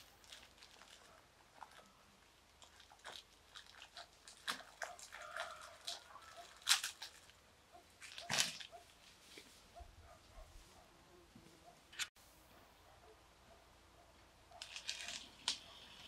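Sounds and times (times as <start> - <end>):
sharp crunching and clicking: 0.0 - 9.0, 14.5 - 16.0.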